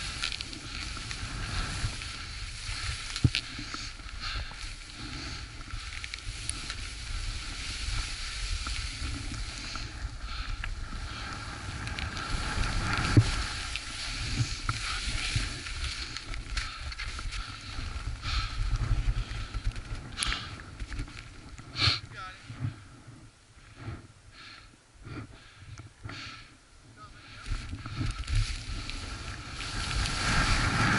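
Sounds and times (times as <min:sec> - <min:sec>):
skis scraping over snow: 0:00.0 - 0:24.0, 0:27.0 - 0:30.9
wind on microphone: 0:27.5 - 0:30.9.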